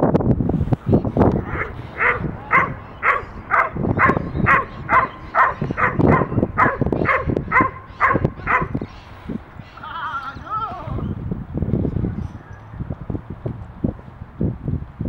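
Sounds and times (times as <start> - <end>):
dog barking: 1.4 - 8.8.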